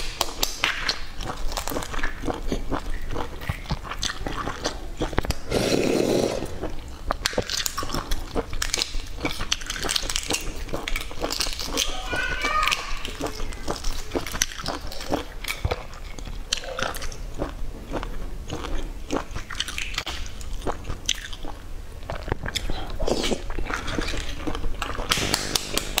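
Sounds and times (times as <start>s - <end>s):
eggshells cracking: 24.2s - 26.0s.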